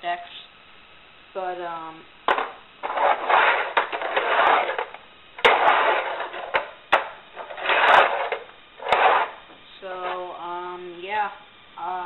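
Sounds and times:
fingerboard wheels rolling on wood: 2.3s - 10.2s.

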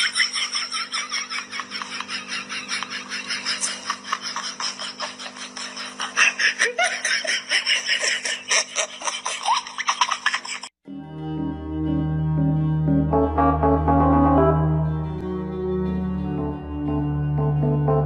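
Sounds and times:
person giggling: 0.0s - 10.7s.

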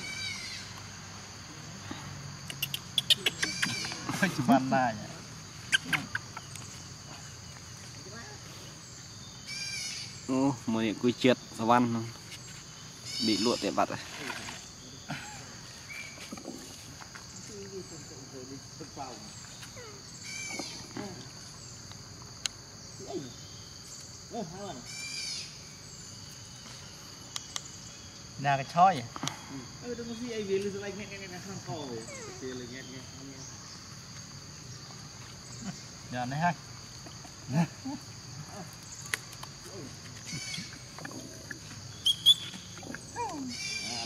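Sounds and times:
insect chorus: 0.0s - 44.0s
high chirps: 41.9s - 44.0s
sharp high squeaks: 42.0s - 42.7s.

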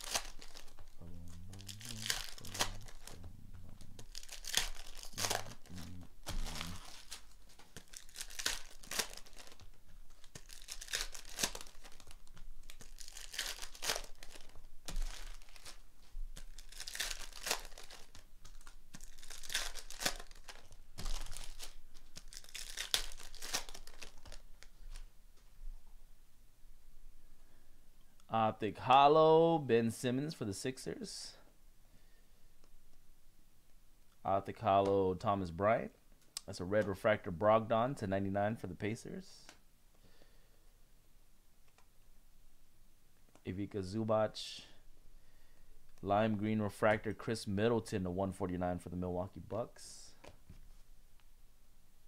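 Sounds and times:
foil wrappers crinkling and tearing: 0.0s - 3.2s, 3.8s - 25.0s
cards being handled: 0.0s - 25.1s.

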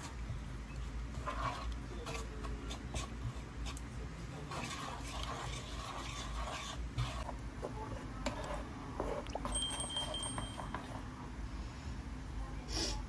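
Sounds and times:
spatula scraping frying pan: 1.2s - 3.2s, 4.5s - 7.3s.

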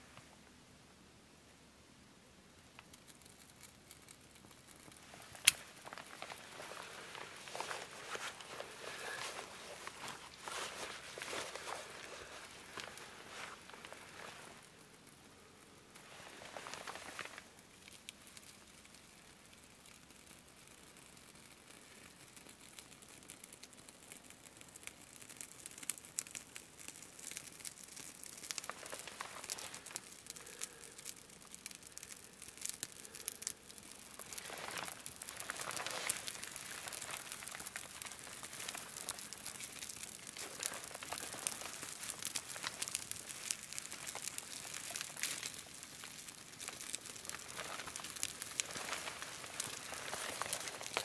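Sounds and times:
fire crackling: 1.5s - 51.0s
dry grass and sticks rustling: 2.6s - 51.0s.

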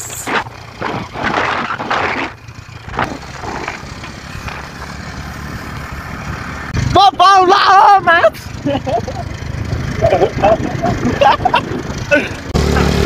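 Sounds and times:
motorcycle engine rumbling: 0.0s - 13.0s.

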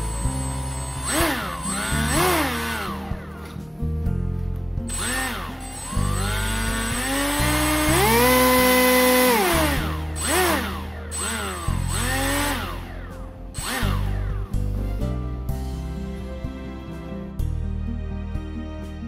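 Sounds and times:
electric motor and propeller whining: 0.0s - 3.7s, 4.9s - 14.6s
background music: 0.0s - 19.0s.

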